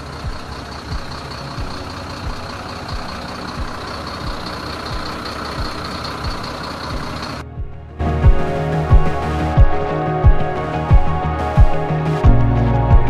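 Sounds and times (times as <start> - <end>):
diesel truck engine running: 0.0 - 7.4
hydraulic hoist whine: 0.0 - 7.4.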